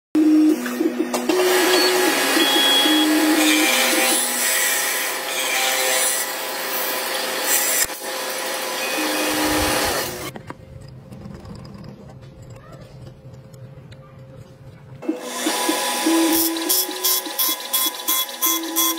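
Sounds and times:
wood lathe shaving wood: 1.2s - 10.4s, 15.0s - 18.9s.

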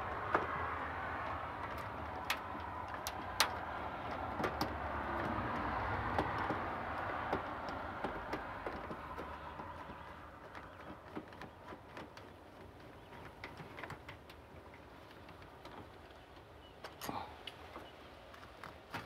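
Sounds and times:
outdoor background noise: 0.0s - 19.0s.

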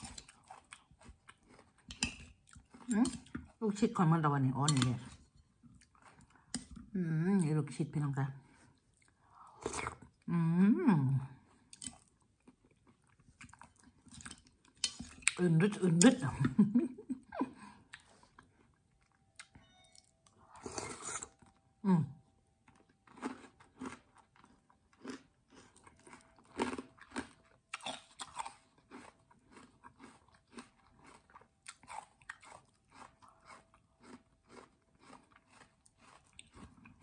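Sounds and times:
chewing and crunching: 0.0s - 3.8s, 4.7s - 6.9s, 11.3s - 16.2s, 17.8s - 21.6s, 22.6s - 37.0s.

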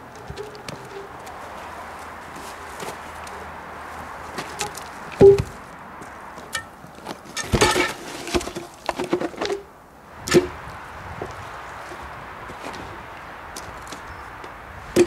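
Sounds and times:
logs knocking and thumping: 4.3s - 10.6s, 11.2s - 15.0s
steel hook striking wood: 4.6s - 5.5s.

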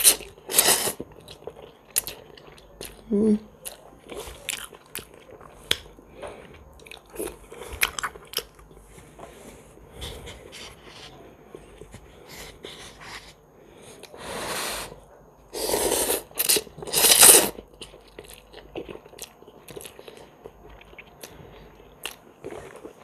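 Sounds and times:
woman chewing noodles: 0.0s - 3.0s, 3.6s - 8.9s, 14.8s - 23.0s.

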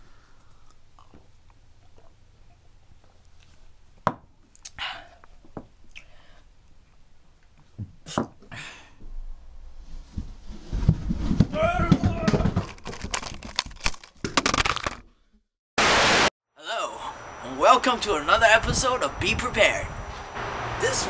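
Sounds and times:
person exhaling harshly: 4.8s - 5.2s, 8.5s - 9.0s.

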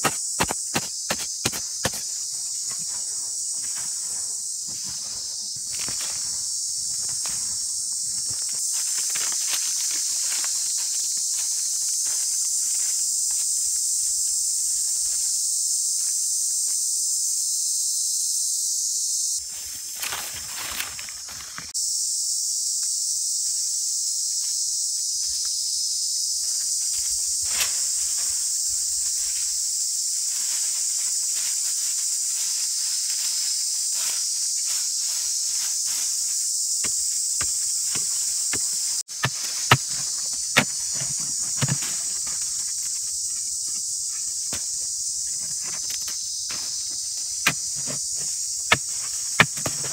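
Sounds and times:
wooden pole digging into soil: 0.0s - 2.1s, 36.8s - 43.0s, 47.4s - 49.9s
insects droning: 0.0s - 49.9s.

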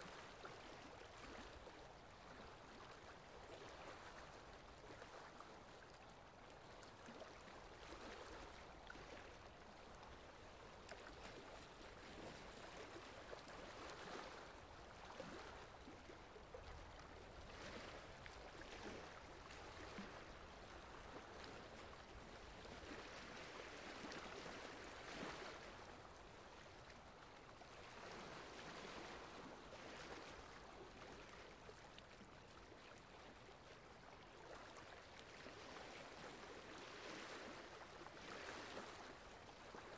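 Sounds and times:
faint steady rain: 0.0s - 1.4s.

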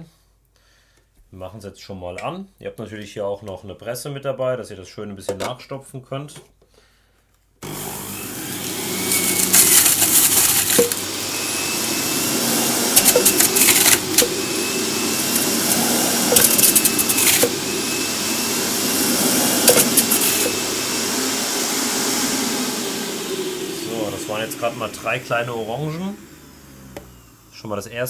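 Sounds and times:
juicer grinding fruit: 7.6s - 27.6s
juicer motor whine: 7.6s - 27.8s.

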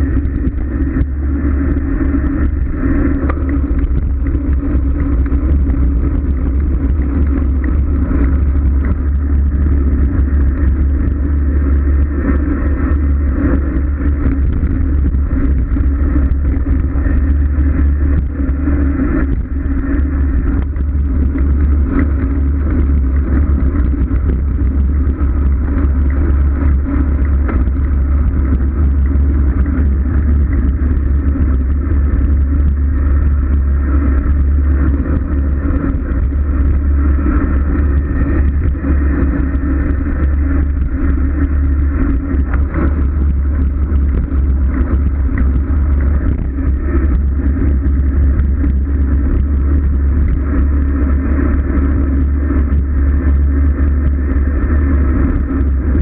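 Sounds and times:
bike road noise rumble: 0.0s - 56.0s
wind buffeting microphone: 0.0s - 56.0s.

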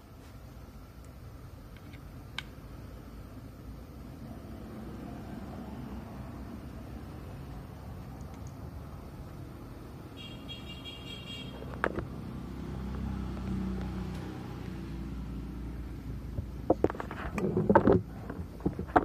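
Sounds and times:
high buzzy tone: 2.9s - 16.3s.

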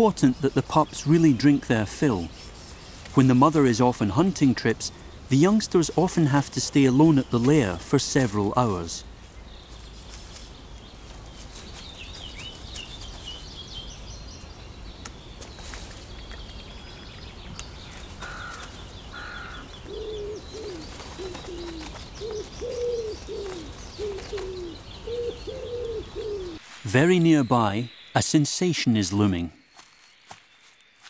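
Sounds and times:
dove cooing: 18.2s - 26.6s
thin high bird notes: 26.5s - 31.0s.

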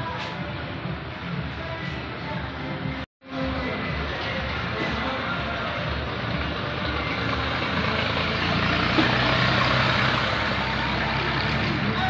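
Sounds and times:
busy street noise: 0.0s - 12.0s
vehicle engine humming: 3.6s - 12.0s.

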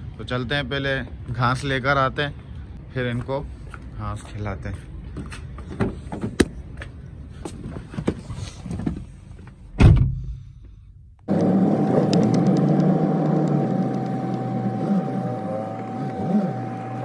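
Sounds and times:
car engine hum from inside: 11.3s - 17.0s.

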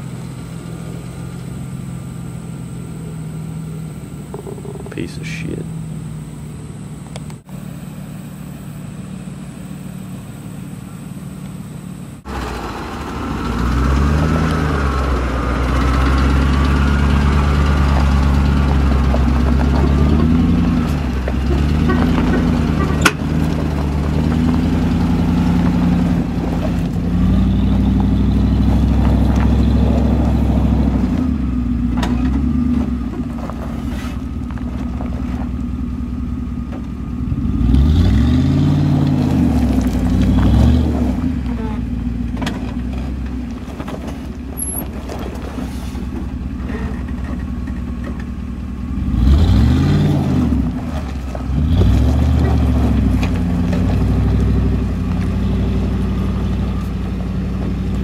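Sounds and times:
pickup engine idling: 0.0s - 37.9s, 38.9s - 49.3s
truck engine revving hard: 12.2s - 34.6s, 37.2s - 43.2s, 48.9s - 58.0s.

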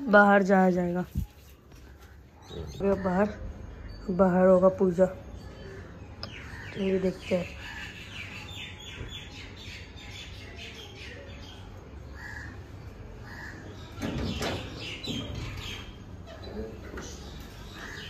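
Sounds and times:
small birds chirping: 1.8s - 18.0s
crows cawing: 12.2s - 12.6s, 13.2s - 13.8s.

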